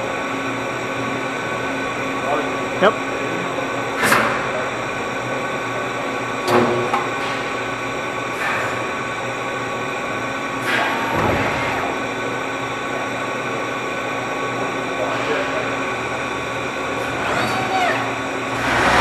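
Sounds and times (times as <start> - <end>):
production line machinery drone: 0.0 - 19.0.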